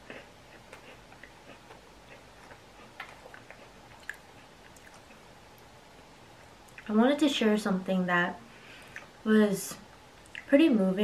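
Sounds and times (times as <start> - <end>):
quiet chewing: 0.0 - 5.7, 6.4 - 6.9, 8.8 - 9.2, 10.2 - 10.5.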